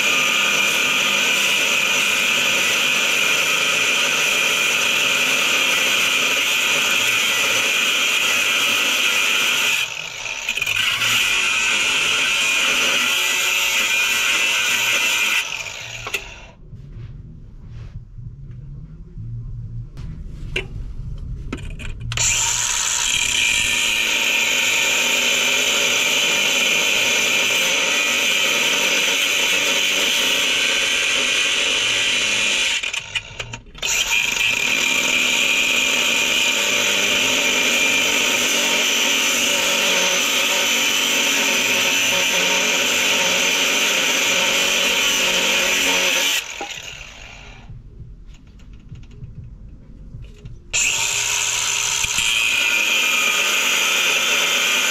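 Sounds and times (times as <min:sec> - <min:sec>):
power tool cutting steel: 0:00.0 - 0:16.6, 0:22.1 - 0:47.7, 0:50.8 - 0:54.9.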